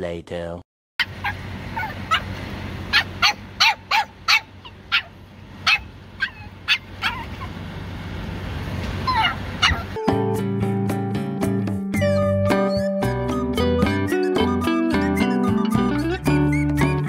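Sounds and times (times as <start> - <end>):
puppy yipping: 1.0 - 2.3, 2.9 - 7.6, 9.0 - 10.0
dog whining: 1.2 - 2.2, 2.9 - 5.1, 5.7 - 7.5, 9.0 - 10.0.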